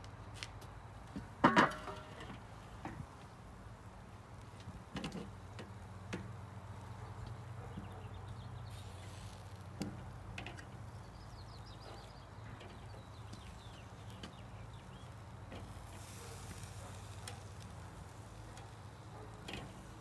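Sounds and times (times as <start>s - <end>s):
metal tongs clicking on grill grate: 9.8s - 10.8s, 16.9s - 17.8s, 18.6s - 19.9s.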